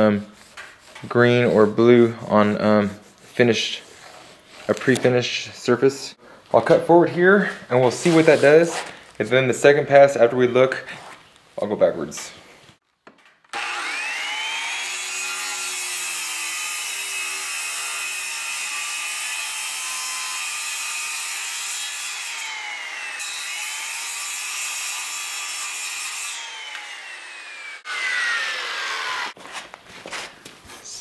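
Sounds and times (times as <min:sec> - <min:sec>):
circular saw cutting board: 0:13.5 - 0:29.6.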